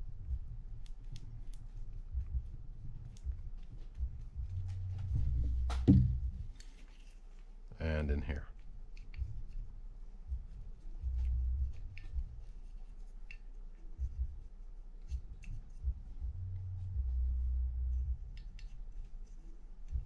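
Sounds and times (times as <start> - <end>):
dull thumps of reel handling: 3.2 - 6.5
faint light clicks and scrapes: 6.4 - 7.6.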